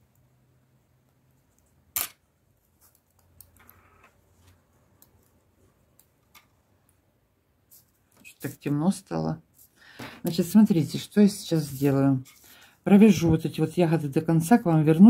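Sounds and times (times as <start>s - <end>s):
knitting needles clicking: 2.8s - 3.8s.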